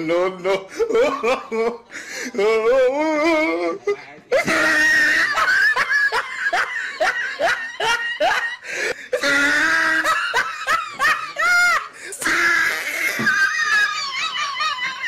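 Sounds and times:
person laughing hard: 4.3 - 15.0
high-pitched squeal of laughter: 11.3 - 15.0.

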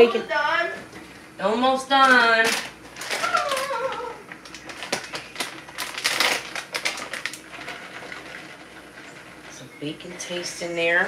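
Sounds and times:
plastic package crinkling: 2.0 - 9.5.

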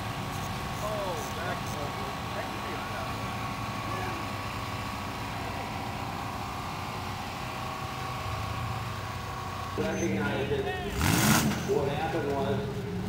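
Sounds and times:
buggy engine running: 0.0 - 13.0.

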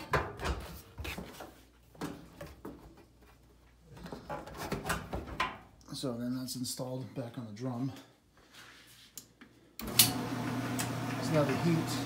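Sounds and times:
dryer part knocking and scraping: 4.0 - 5.7.

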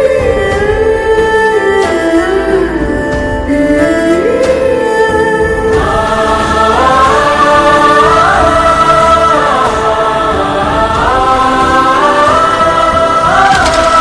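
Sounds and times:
instrumental accompaniment: 0.0 - 14.0
choir singing long held notes: 3.7 - 14.0.

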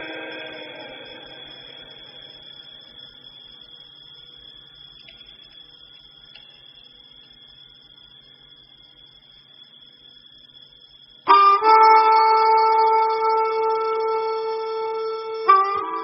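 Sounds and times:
steady high-pitched tone: 0.0 - 5.6.

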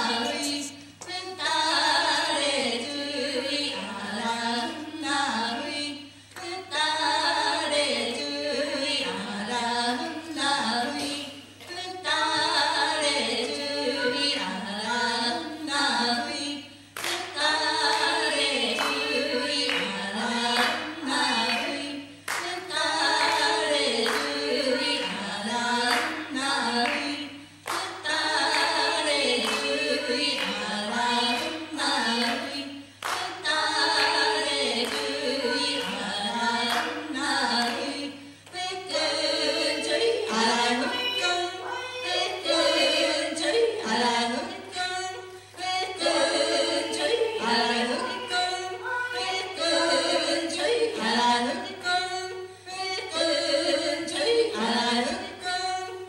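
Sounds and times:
women singing: 0.0 - 56.0
sharp claps: 17.0 - 17.3, 22.3 - 22.6, 26.8 - 28.8, 33.0 - 35.1.

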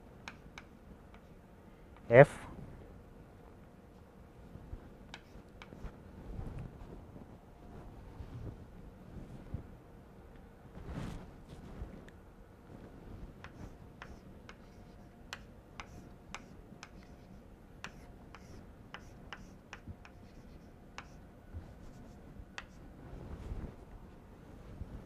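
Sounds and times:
chalk tapping on blackboard: 0.2 - 1.3, 5.1 - 5.8, 13.4 - 22.8.

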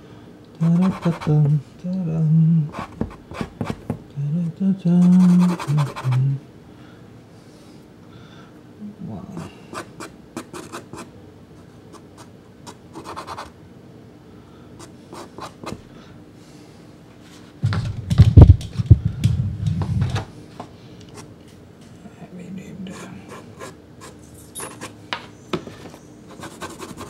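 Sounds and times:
pastel scratching on card: 0.6 - 1.4, 5.0 - 6.2, 26.3 - 27.0
low thumping and rumbling: 17.6 - 20.3.

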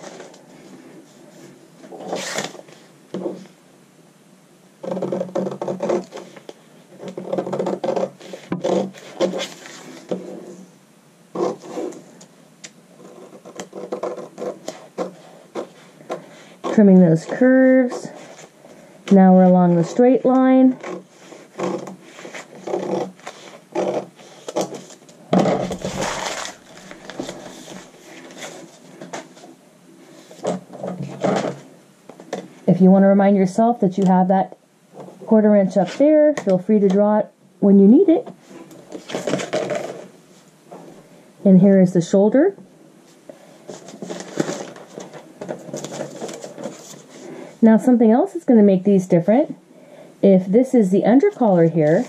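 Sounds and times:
paper rustling: 5.6 - 10.6, 13.0 - 29.5, 38.5 - 40.1, 43.6 - 47.4, 51.3 - 52.0.

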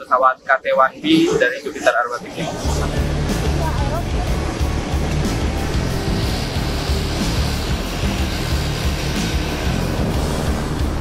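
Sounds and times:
background music: 0.0 - 11.0
turboprop aircraft taxiing: 0.3 - 11.0.

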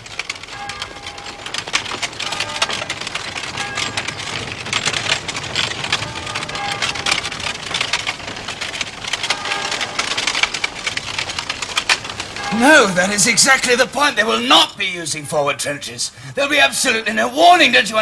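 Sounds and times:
hooves on road: 0.0 - 14.3
wooden cart wheels clattering: 0.0 - 18.0.

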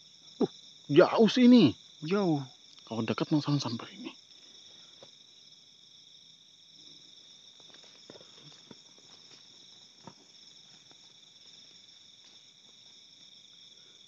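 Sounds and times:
crickets trilling: 0.0 - 14.0
faint ticks and rustles: 6.8 - 13.9.

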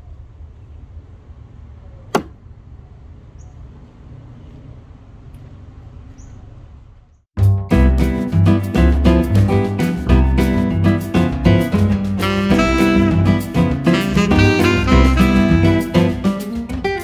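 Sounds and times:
axe chopping: 2.1 - 2.4
upbeat music: 7.4 - 17.0.

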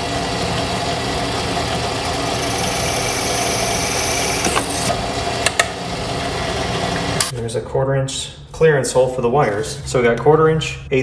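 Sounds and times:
drill press motor running: 0.0 - 7.3
drill bit cutting plastic hiss: 2.4 - 4.9.

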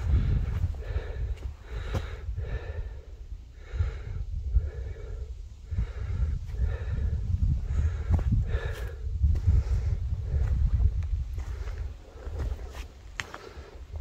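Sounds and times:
man breathing hard: 0.0 - 14.0
wind rumble on microphone: 0.0 - 14.0.

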